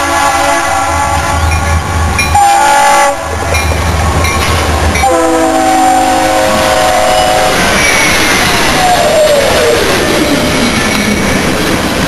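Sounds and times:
locomotive air horn: 0.0s - 1.5s, 2.3s - 3.4s, 5.0s - 7.8s
diesel engines rumbling: 0.0s - 12.0s.

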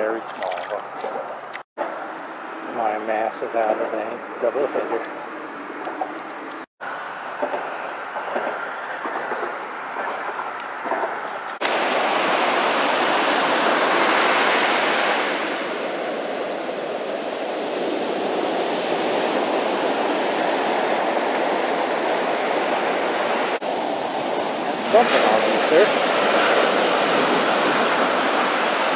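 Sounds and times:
ocean surf breaking on beach: 11.6s - 28.9s.

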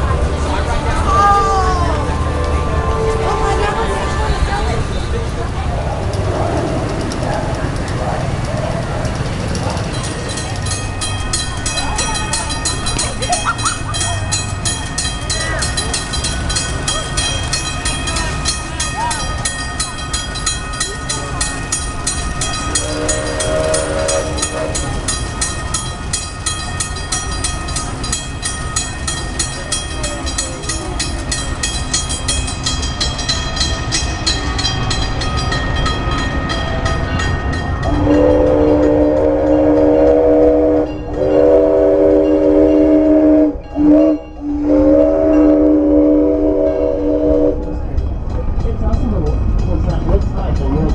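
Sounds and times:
crossing signal bell ringing: 6.2s - 50.9s
steam locomotive whistle: 22.6s - 25.3s, 37.9s - 47.8s.

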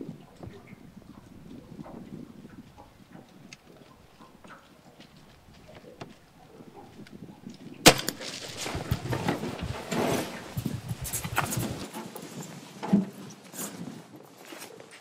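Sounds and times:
dart gun shot crack: 7.8s - 8.5s.

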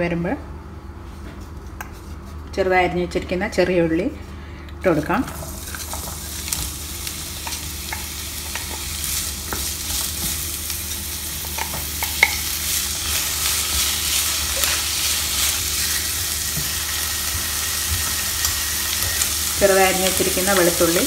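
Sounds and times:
shallots sizzling in oil: 5.2s - 21.0s.

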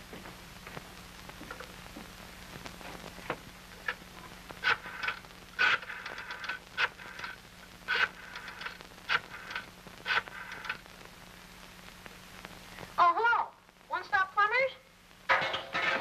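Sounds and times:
rotary dial clicking and whirring: 4.6s - 10.8s.

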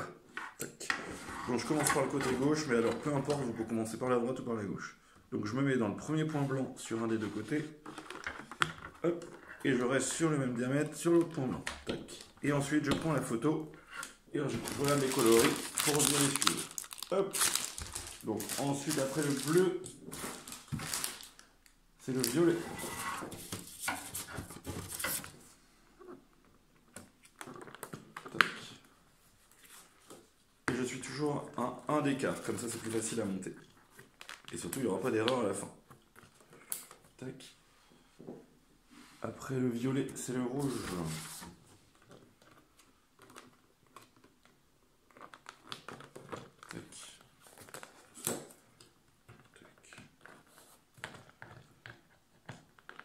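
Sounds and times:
petal rustling and crinkling: 14.4s - 21.5s.

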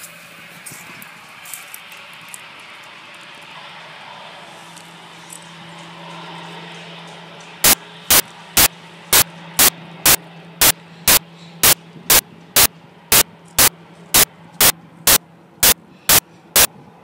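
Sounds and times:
steady low hum: 0.0s - 17.0s
static bursts: 7.6s - 16.7s.

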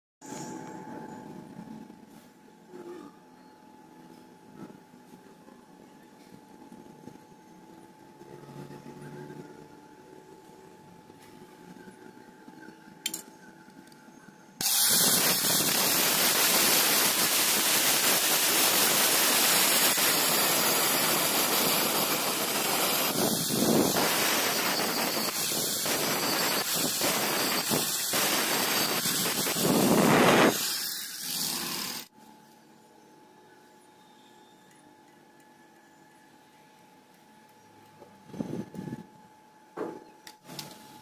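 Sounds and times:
angle grinder grinding steel: 14.6s - 32.1s.

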